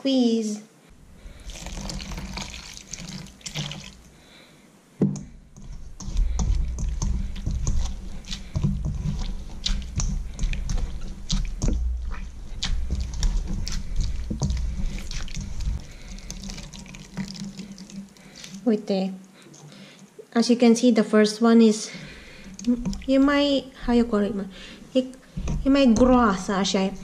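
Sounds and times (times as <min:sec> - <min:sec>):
coconut squelching by hand: 0:00.9 - 0:04.2, 0:05.2 - 0:20.0, 0:21.9 - 0:27.0
water pouring: 0:01.0 - 0:04.2, 0:05.6 - 0:18.8, 0:22.0 - 0:27.0.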